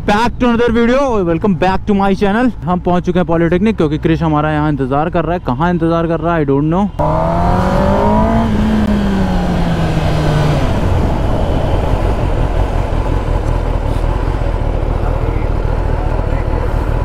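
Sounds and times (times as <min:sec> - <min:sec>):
motorcycle engine slowing: 0:07.0 - 0:17.0
wind rumble on microphone: 0:07.0 - 0:17.0.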